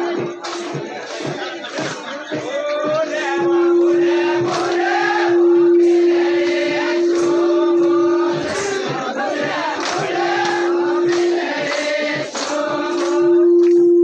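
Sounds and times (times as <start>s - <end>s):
group of voices singing: 0.0s - 14.0s
sharp percussion strokes: 0.0s - 14.0s
loud held drone note: 3.1s - 14.0s.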